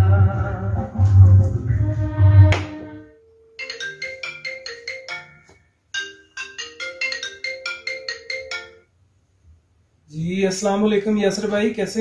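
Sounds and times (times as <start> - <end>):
marimba phone ringtone: 3.1 - 9.0.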